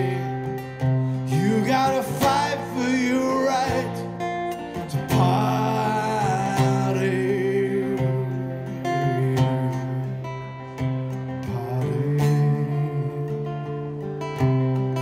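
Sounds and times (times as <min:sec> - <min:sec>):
man singing wordless held notes: 0:00.0 - 0:00.5, 0:01.2 - 0:10.0, 0:11.4 - 0:13.5
strummed acoustic guitar: 0:00.0 - 0:15.0.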